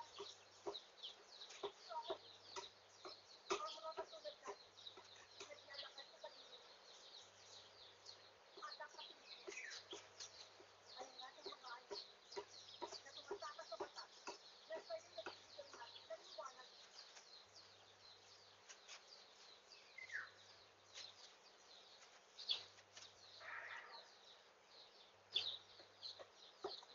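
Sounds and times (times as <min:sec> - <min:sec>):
faint chicken clucking: 0:00.0 - 0:26.9
high-pitched bird chirping: 0:00.0 - 0:26.9
falling bird call: 0:23.4 - 0:24.2.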